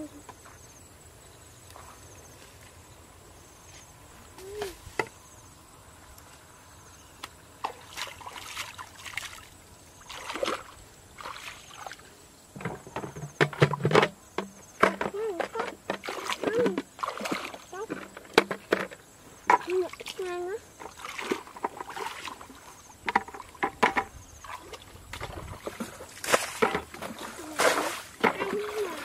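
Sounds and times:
hands splashing in muddy water: 7.6 - 9.5, 10.1 - 12.0, 16.0 - 17.7, 20.9 - 22.7, 24.4 - 29.0.

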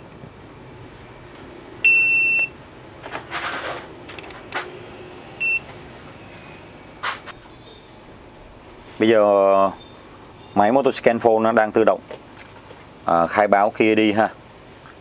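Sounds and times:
electronic beeps: 1.8 - 2.6, 5.4 - 5.7.

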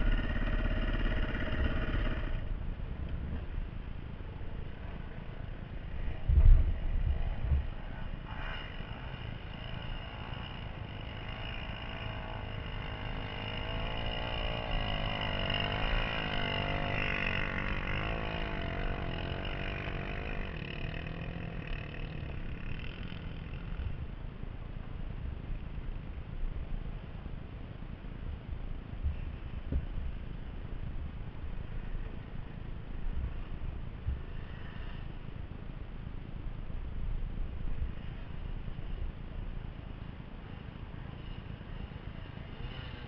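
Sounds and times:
dirt bike engine revving: 0.0 - 2.6, 4.6 - 24.0, 40.5 - 43.0.

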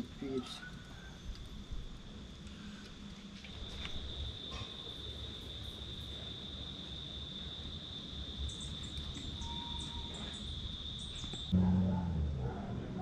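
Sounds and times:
insect trilling: 3.7 - 11.6.

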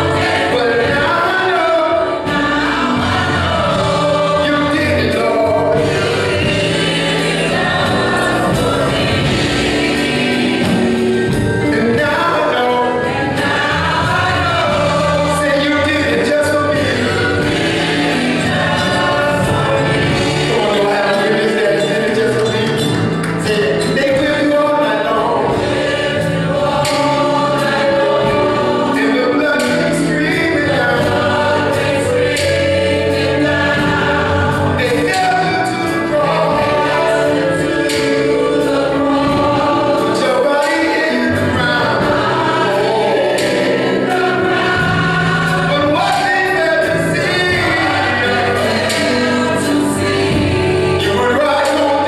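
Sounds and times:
bass notes: 0.0 - 51.4
gospel choir singing: 0.0 - 52.0
man singing lead: 4.0 - 6.4, 11.6 - 17.4, 19.1 - 25.6, 28.9 - 31.2, 34.6 - 43.1, 44.0 - 52.0
steady beat: 25.4 - 51.1.

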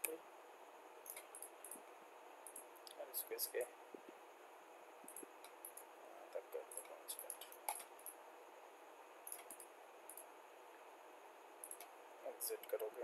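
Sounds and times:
steady hiss: 0.0 - 13.0
computer mouse clicking: 6.7 - 8.2, 9.2 - 10.3, 11.6 - 11.9.

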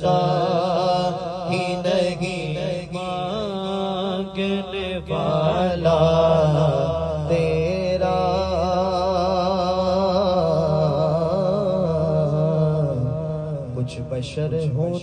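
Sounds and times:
low hummed vocal drone: 0.0 - 15.0
man singing into a microphone: 0.0 - 15.0.

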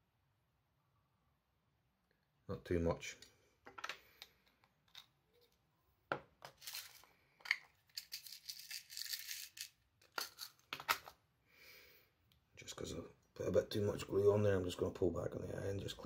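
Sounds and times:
small handling clicks and knocks: 3.2 - 11.2.

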